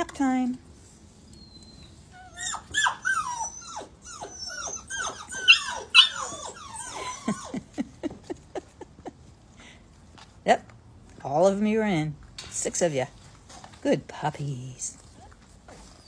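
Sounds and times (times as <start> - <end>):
puppies whining and yipping: 1.3 - 7.8, 15.2 - 16.0.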